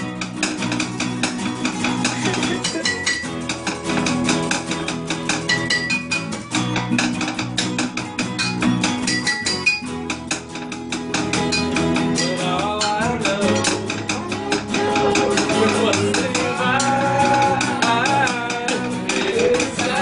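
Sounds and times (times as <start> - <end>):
acoustic guitars strumming: 0.0 - 20.0.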